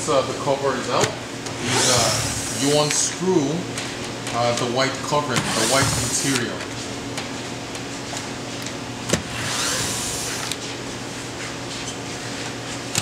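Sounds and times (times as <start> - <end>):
steady low hum: 0.0 - 13.0
cordless drill running: 1.6 - 2.9, 5.5 - 6.4, 9.3 - 10.6.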